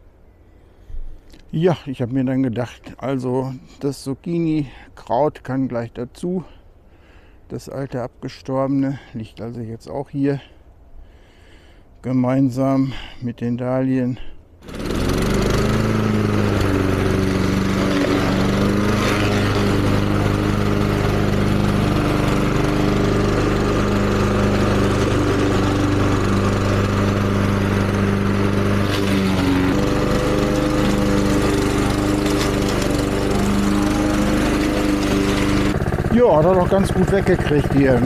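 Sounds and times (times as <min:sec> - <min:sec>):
lawn mower mowing: 0:14.6 - 0:38.0.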